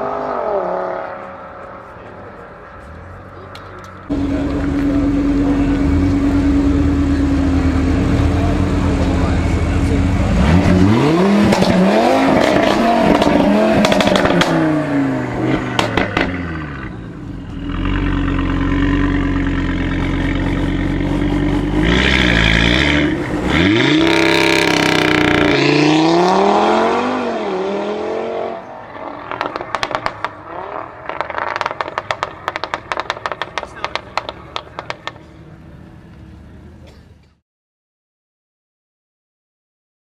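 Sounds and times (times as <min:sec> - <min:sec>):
car engine revving: 0:00.0 - 0:36.6
exhaust pops and crackles: 0:12.4 - 0:14.6, 0:15.7 - 0:16.4, 0:29.2 - 0:35.4.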